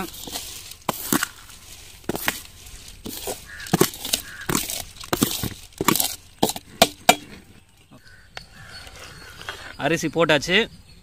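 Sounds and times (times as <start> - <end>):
metal ladle scraping a bowl: 0.0 - 7.4.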